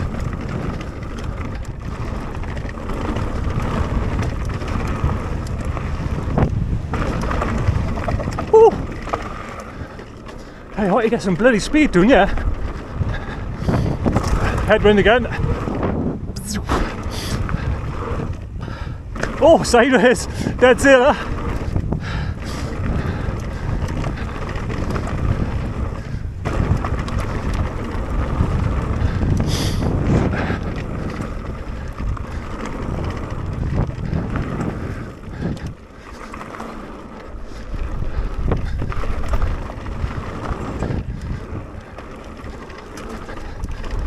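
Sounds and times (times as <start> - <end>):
bike rumbling and rattling on trail: 0.0 - 44.0
wind buffeting microphone: 0.0 - 44.0.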